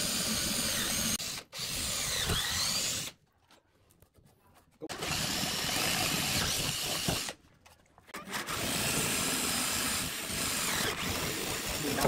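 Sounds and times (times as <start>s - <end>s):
power drill boring into wood: 0.0s - 3.2s, 4.9s - 7.4s, 8.2s - 12.0s.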